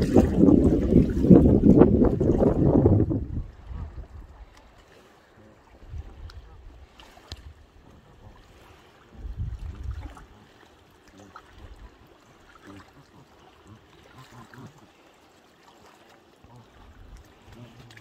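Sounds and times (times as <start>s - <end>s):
wind rumbling on microphone: 0.0s - 4.6s, 5.7s - 10.4s
lake water lapping: 0.0s - 18.0s.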